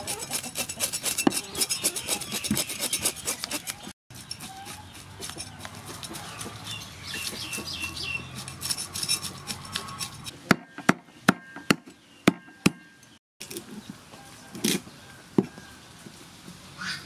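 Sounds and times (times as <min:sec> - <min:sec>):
cleaver scraping fish scales: 0:00.0 - 0:10.4.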